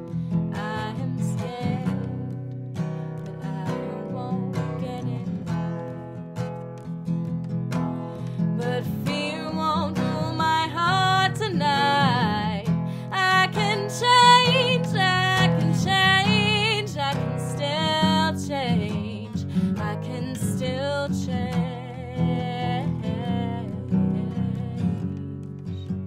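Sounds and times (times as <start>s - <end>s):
strummed acoustic guitar: 0.0s - 26.0s
woman singing with vibrato: 0.6s - 2.4s, 3.2s - 5.3s, 8.6s - 25.0s.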